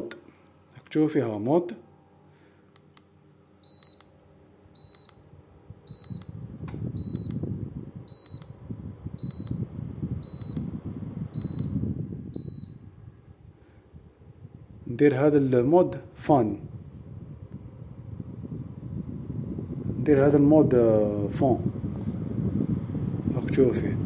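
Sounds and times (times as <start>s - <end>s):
air conditioner fan rushing: 0.0s - 24.0s
air conditioner short beeps: 3.6s - 13.0s.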